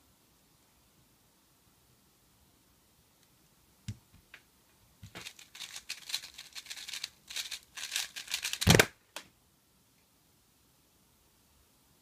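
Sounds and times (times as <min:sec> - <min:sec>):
plastic puzzle cube clicking: 0:05.1 - 0:08.9.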